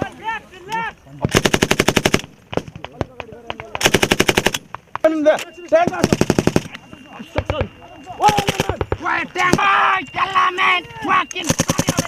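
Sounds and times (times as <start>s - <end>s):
machine gun bursts: 1.3s - 2.3s, 3.8s - 4.7s, 5.9s - 6.8s, 11.4s - 12.0s.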